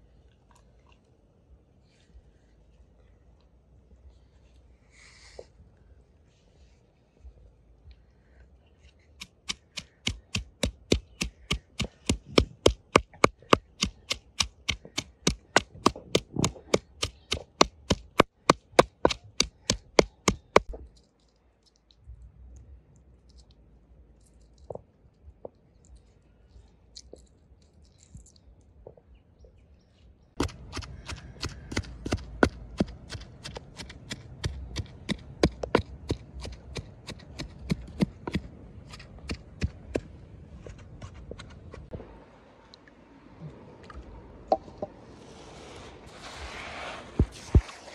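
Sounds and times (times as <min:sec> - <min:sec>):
pestle pounding in wooden mortar: 0:09.2 - 0:20.7, 0:30.4 - 0:40.1.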